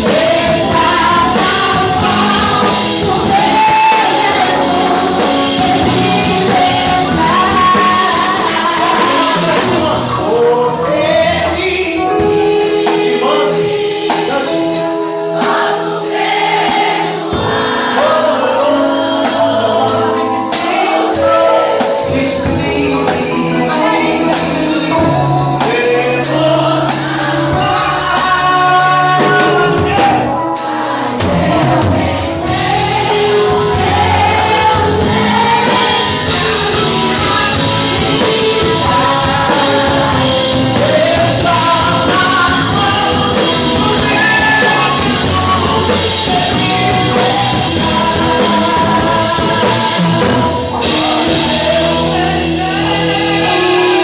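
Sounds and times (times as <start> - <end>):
woman singing into microphone: 0.0 - 10.3
electric bass: 0.0 - 12.4, 18.6 - 54.0
congregation singing along: 0.0 - 54.0
keyboard: 0.0 - 54.0.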